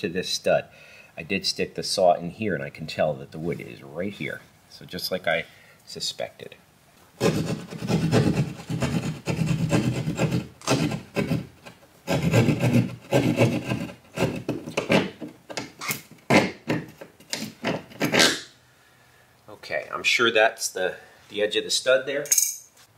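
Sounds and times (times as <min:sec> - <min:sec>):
hand saw cutting drywall: 0:07.2 - 0:15.2, 0:15.9 - 0:18.4.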